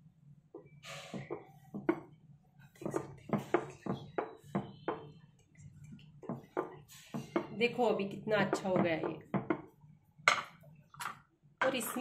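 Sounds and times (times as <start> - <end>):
rolling pin knocking on wooden board: 1.2 - 2.1, 8.4 - 9.7.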